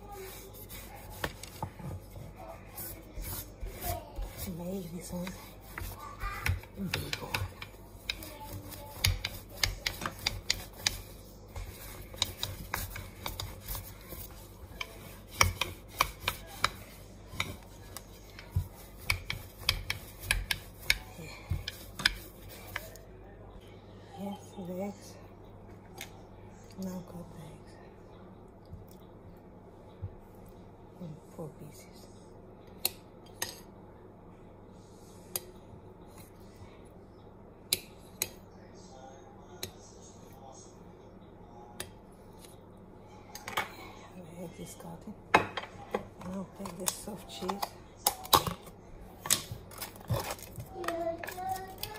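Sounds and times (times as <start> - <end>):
rolling pin rolling dough: 0.0 - 23.1.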